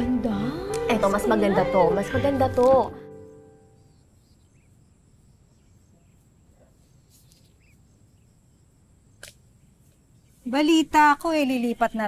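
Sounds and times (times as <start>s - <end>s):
thin insect tone: 0.4s - 12.0s
soft bird chirps: 3.6s - 12.0s.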